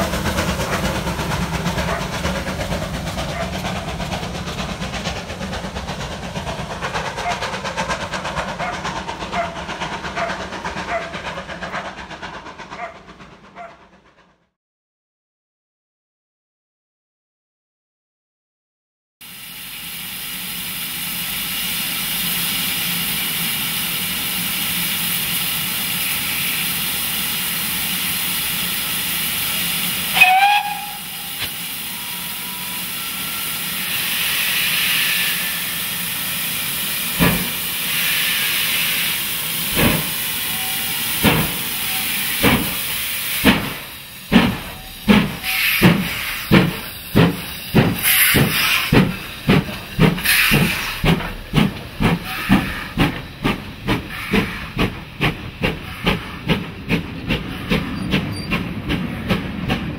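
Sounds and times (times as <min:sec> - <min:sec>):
steam hissing: 0:00.0 - 0:14.0, 0:19.2 - 0:59.9
locomotive exhaust chuffs: 0:00.0 - 0:14.4, 0:19.4 - 0:59.9
steam locomotive whistle: 0:29.5 - 0:35.9, 0:40.4 - 0:42.5, 0:44.7 - 0:46.4.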